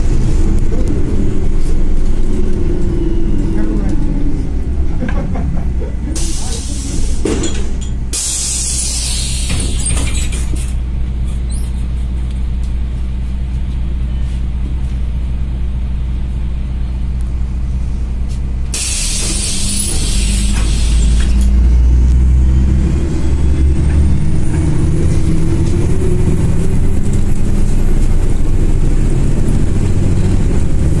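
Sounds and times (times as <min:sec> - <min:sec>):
bus engine low drone: 0:00.0 - 0:31.0
hiss: 0:08.2 - 0:09.8, 0:18.8 - 0:21.2.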